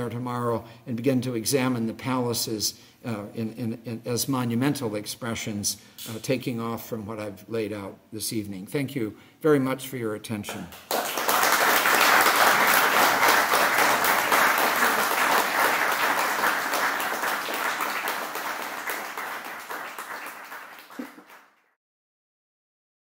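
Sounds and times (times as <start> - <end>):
audience applauding: 10.9 - 21.7.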